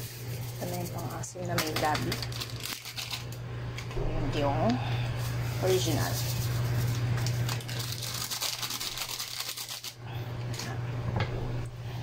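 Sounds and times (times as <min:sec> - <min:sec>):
powder shaken into pot: 0:00.0 - 0:03.3, 0:05.2 - 0:10.0
plastic sachet crinkling: 0:00.0 - 0:03.4, 0:05.2 - 0:10.0
steady low hum: 0:00.0 - 0:12.0.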